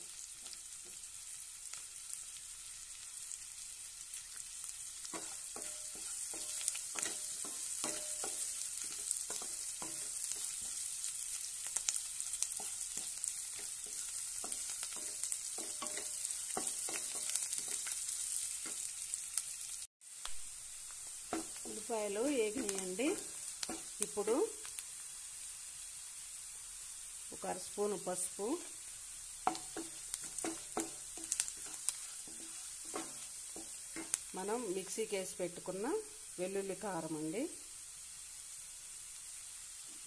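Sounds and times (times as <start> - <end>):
onions sizzling in oil: 0.0 - 40.0
spatula knocking and scraping pan: 5.0 - 10.9, 12.5 - 18.0, 21.2 - 24.5, 29.4 - 34.3.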